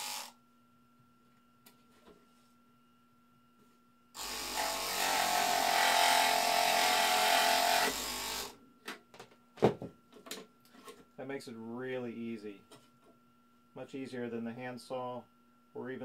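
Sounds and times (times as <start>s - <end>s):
mini jigsaw buzzing: 0.0s - 0.4s, 4.2s - 8.6s.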